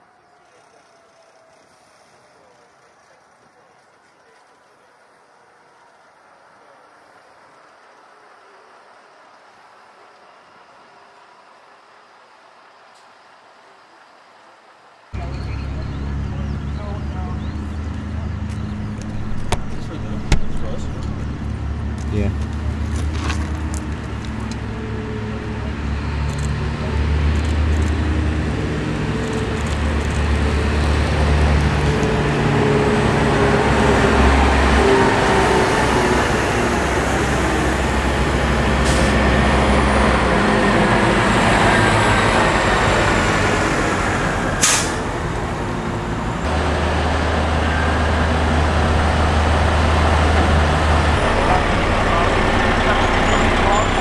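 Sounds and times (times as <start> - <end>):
military trucks driving past: 0.0 - 54.0
idling engine hum: 15.2 - 54.0.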